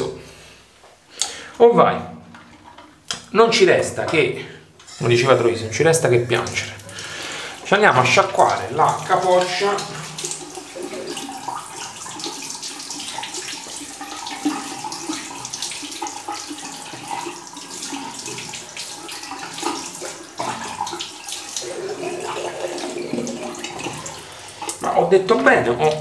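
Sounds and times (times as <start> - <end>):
water splashing: 5.1 - 26.0
tap running into a sink: 8.3 - 24.8.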